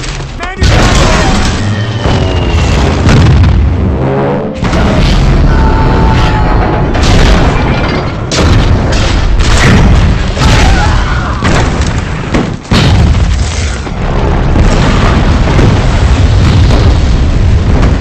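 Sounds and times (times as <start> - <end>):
heavy explosions: 0.0 - 18.0.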